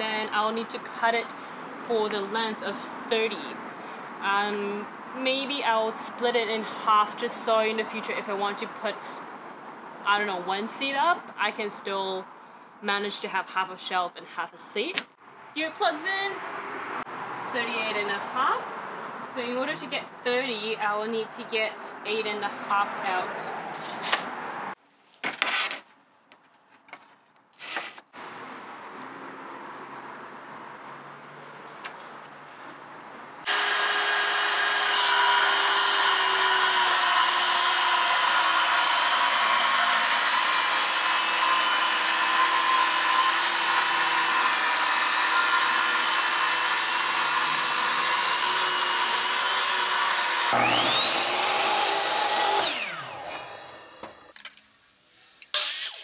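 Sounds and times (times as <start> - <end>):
circular saw cutting wood: 33.4 - 54.3, 55.5 - 56.0
miter saw motor whine: 33.5 - 54.0.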